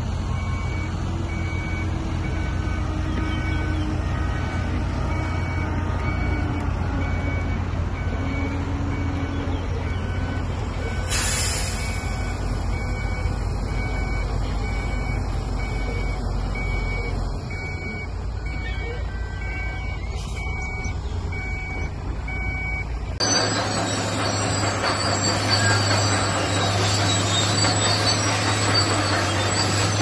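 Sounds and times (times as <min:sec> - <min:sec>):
diesel engine running: 0:00.0 - 0:30.0
two-pitch reversing beeper: 0:09.9 - 0:30.0
sharp hiss of air: 0:11.1 - 0:12.1.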